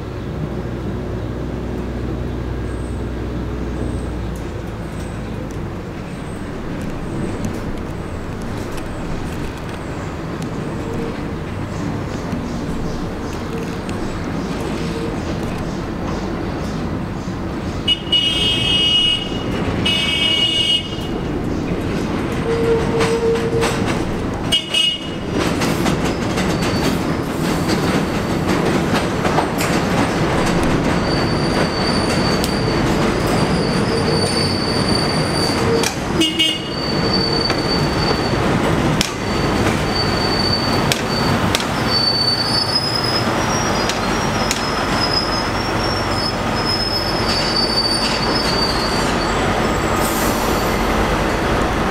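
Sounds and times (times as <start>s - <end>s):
train wheels rumbling on rails: 0.0s - 51.9s
train horn blasts: 17.9s - 21.1s, 24.5s - 25.2s, 35.5s - 37.5s
high wheel squeal: 26.0s - 28.3s, 29.9s - 51.3s.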